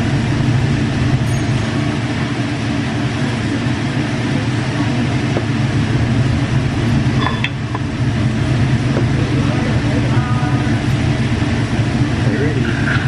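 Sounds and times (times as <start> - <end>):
table grill rumble and hiss: 0.0 - 13.0
ventilation noise: 0.0 - 13.0.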